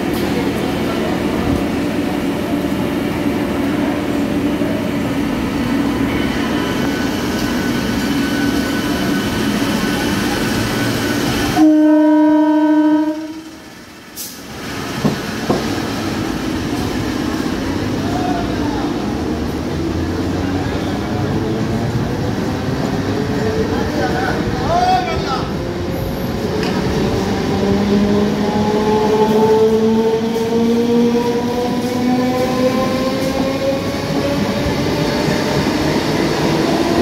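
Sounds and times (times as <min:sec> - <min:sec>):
electric train humming: 0:00.0 - 0:37.0
train horn blast: 0:11.5 - 0:13.5.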